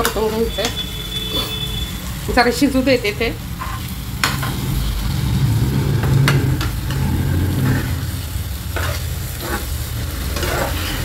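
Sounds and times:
spatula scraping pan: 0:00.0 - 0:02.0, 0:03.5 - 0:11.0
food sizzling in frying pan: 0:00.0 - 0:11.0
low rumble: 0:03.2 - 0:08.6.

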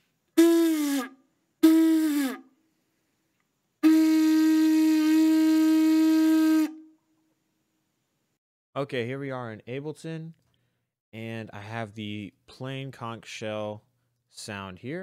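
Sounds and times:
conch shell trumpet blasts: 0:00.4 - 0:02.5, 0:03.8 - 0:07.0.

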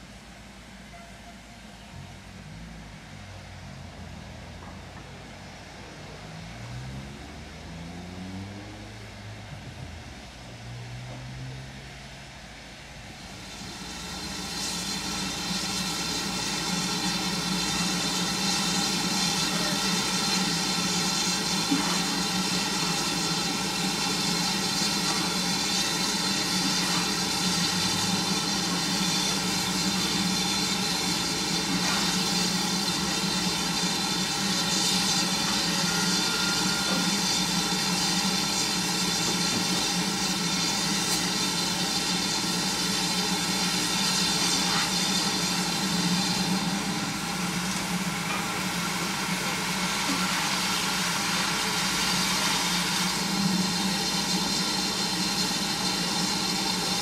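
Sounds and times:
steam locomotive running slowly: 0:00.0 - 0:57.0
steam hissing: 0:13.0 - 0:57.0.

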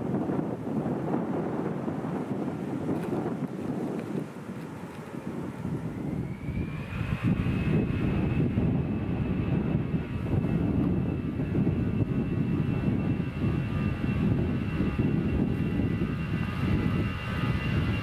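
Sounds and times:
high engine whine: 0:00.0 - 0:18.0
jet engines rumble: 0:00.0 - 0:18.0.

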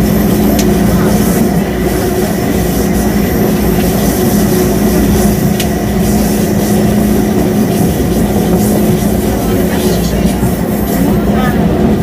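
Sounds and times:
electric train hum: 0:00.0 - 0:12.0.

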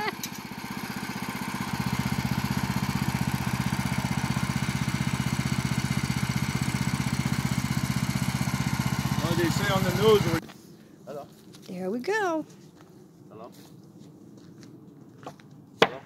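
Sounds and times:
small gasoline engine running: 0:00.0 - 0:10.4.

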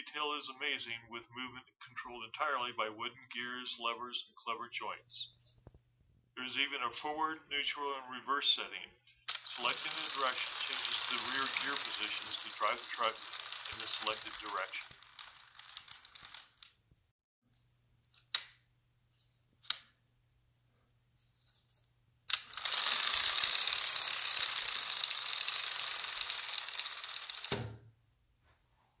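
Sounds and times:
sharp clicks: 0:09.3 - 0:16.8
wooden gears whirring clatter: 0:09.3 - 0:16.8, 0:22.3 - 0:27.7.

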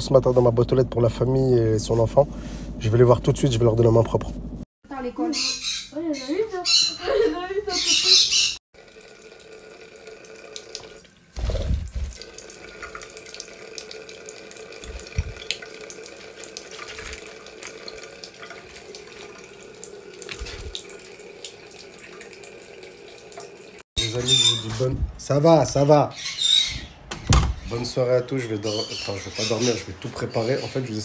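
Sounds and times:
tap running into sink: 0:14.8 - 0:15.6.

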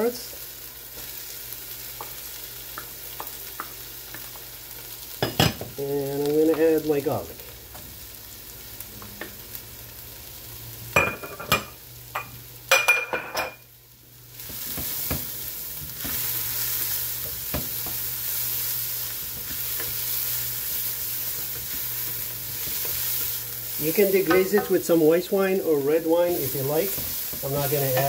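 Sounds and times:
vegetables sizzling in oil: 0:00.0 - 0:28.0.

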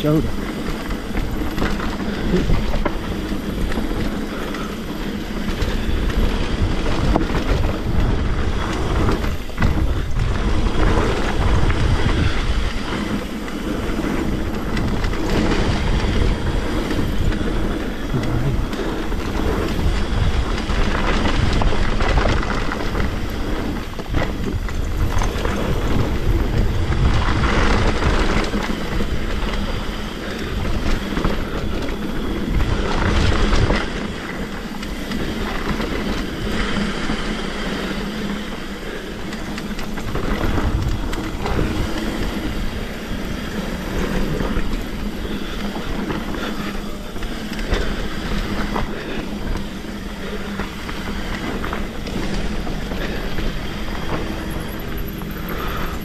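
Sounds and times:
bike chain and frame rattling: 0:00.0 - 0:56.0
tyre rumble on rough trail: 0:00.0 - 0:56.0
wind buffeting microphone: 0:00.0 - 0:56.0.

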